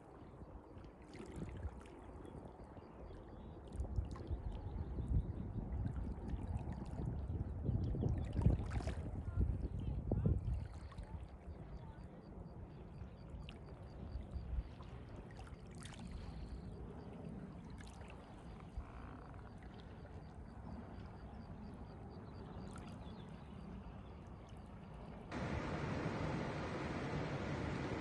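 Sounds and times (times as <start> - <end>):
wind rumbling on microphone: 0.2 - 15.3
lake waves lapping at shore: 8.2 - 9.3, 25.3 - 28.0
loud steady rush: 25.3 - 28.0.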